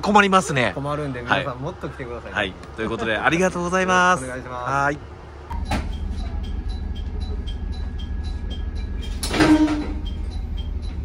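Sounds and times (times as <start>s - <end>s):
diesel railcar rumbling: 0.0s - 11.0s
light regular ticking: 5.5s - 9.3s, 10.0s - 11.0s.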